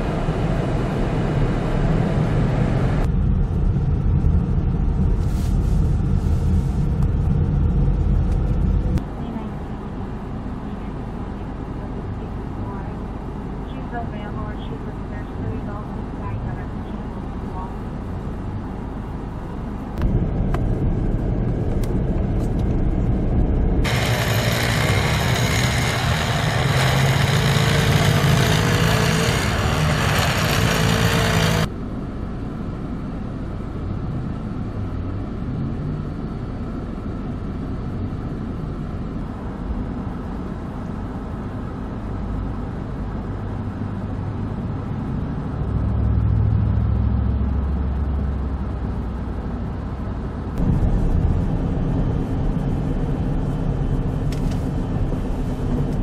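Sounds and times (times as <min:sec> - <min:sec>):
vehicle engines running: 0:00.0 - 0:56.0
car engine revving: 0:22.8 - 0:31.7
tyres spinning in snow: 0:23.8 - 0:31.7.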